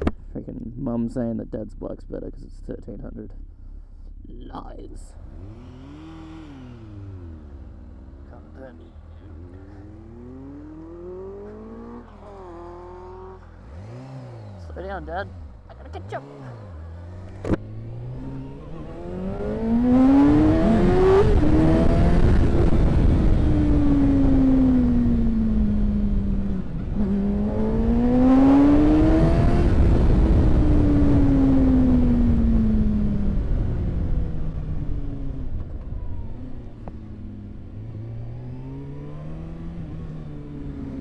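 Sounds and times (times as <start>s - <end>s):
motorcycle engine revving: 5.1s - 41.0s
wind rush on microphone: 20.2s - 27.7s.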